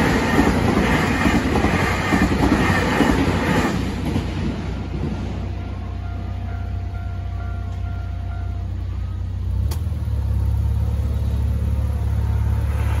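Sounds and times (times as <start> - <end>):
car engine and road rumble: 4.7 - 13.0.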